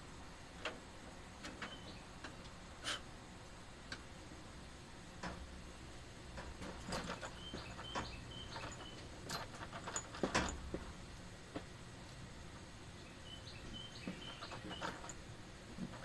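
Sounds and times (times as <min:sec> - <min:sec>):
bird chirping: 0:01.6 - 0:02.1, 0:07.0 - 0:09.1, 0:13.0 - 0:15.1.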